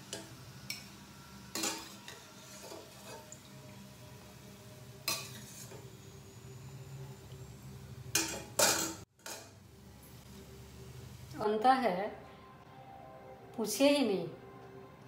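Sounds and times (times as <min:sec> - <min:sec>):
metal spatula scraping frying pan: 0:01.5 - 0:03.3, 0:05.0 - 0:06.8.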